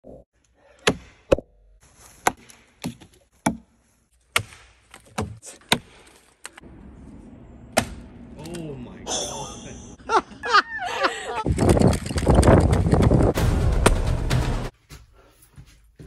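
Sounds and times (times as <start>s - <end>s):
axe chopping log: 0.8s - 1.4s, 2.2s - 3.7s, 4.3s - 6.0s, 7.8s - 8.0s.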